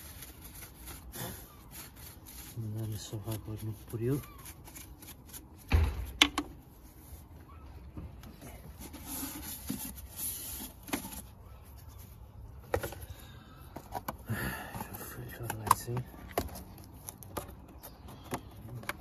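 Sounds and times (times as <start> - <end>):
light rubbing and rustling: 0.0 - 13.1.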